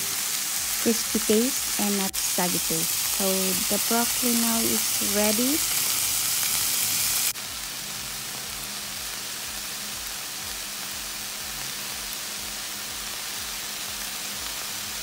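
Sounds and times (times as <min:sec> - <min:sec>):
vegetables sizzling in hot oil: 0:00.0 - 0:15.0.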